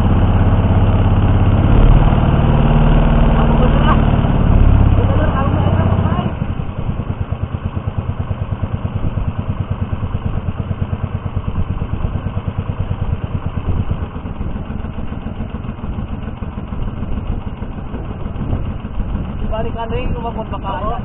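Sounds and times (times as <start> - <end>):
small boat engine pulsing: 0.0 - 21.0.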